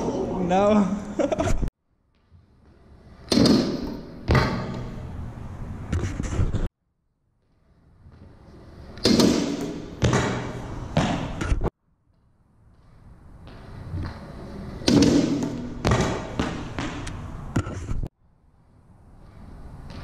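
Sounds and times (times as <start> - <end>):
scooter landing slam: 3.2 - 5.1, 9.0 - 11.7, 14.7 - 17.8.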